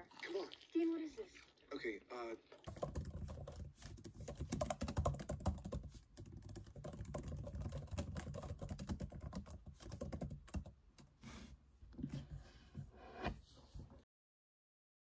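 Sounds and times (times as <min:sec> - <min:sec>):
laptop keyboard typing: 0:02.7 - 0:11.1.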